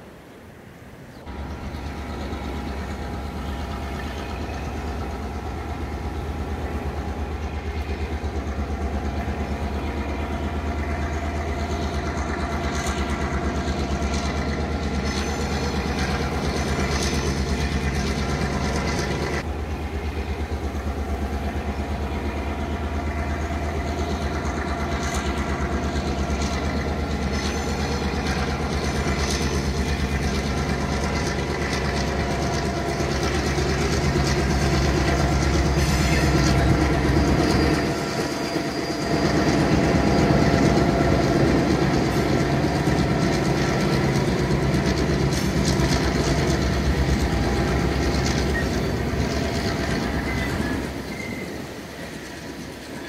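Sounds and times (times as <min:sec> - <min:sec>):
diesel locomotive engine drone: 0:00.0 - 0:53.0
carriage wheels clattering on rails: 0:10.6 - 0:19.4, 0:22.9 - 0:53.0.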